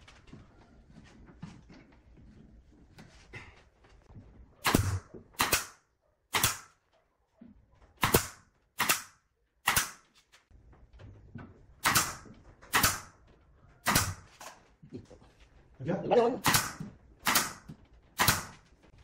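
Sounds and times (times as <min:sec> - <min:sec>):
nail gun firing into wood: 0:04.6 - 0:06.8, 0:08.0 - 0:10.1, 0:11.8 - 0:13.1, 0:13.8 - 0:14.3, 0:16.4 - 0:18.6.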